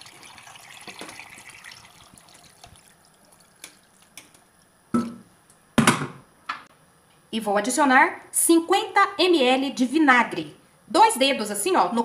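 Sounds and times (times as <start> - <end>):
water pouring into metal pot: 0.0 - 4.7.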